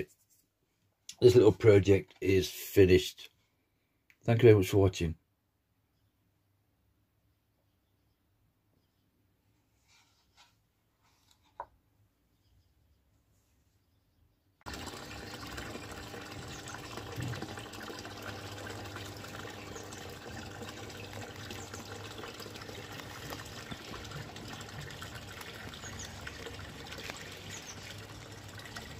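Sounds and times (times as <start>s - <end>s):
water splashing into pond: 14.6s - 28.9s.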